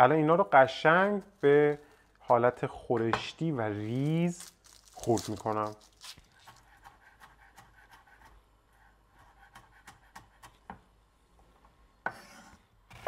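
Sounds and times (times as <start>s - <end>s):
knife chopping on wooden board: 9.2s - 10.8s.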